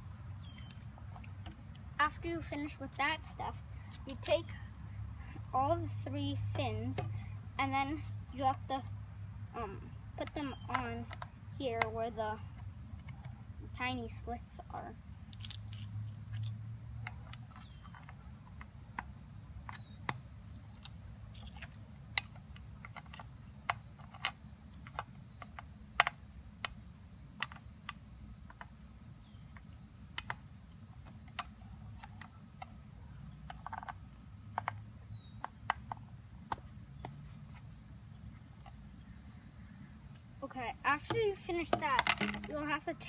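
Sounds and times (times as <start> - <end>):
high insect trill: 15.6 - 43.0
plastic clicks and taps: 41.0 - 42.8.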